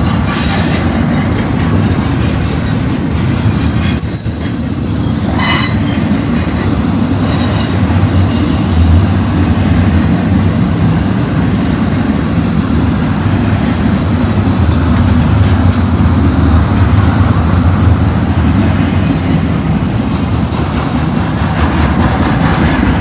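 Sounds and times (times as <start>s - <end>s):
train wheel squeal: 0.0s - 8.7s, 9.9s - 10.4s
freight train wheels rumbling: 0.0s - 23.0s.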